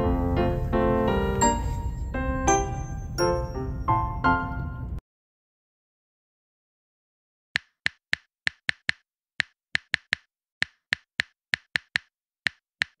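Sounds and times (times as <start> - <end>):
sharp dry clicks: 7.6 - 13.0.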